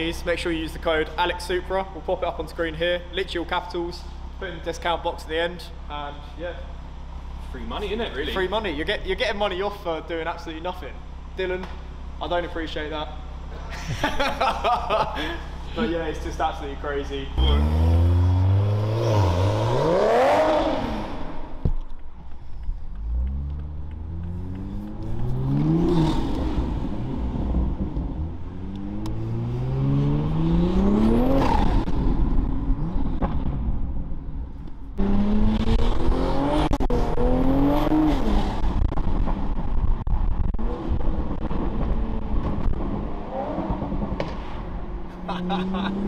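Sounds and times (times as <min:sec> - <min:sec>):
car engine accelerating hard: 0:15.0 - 0:21.6, 0:22.5 - 0:46.0.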